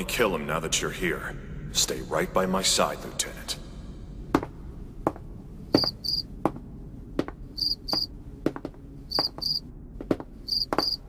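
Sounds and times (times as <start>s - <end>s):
low hum: 0.0s - 11.0s
cricket chirping: 5.7s - 6.3s, 7.6s - 8.1s, 9.1s - 9.7s, 10.4s - 11.0s.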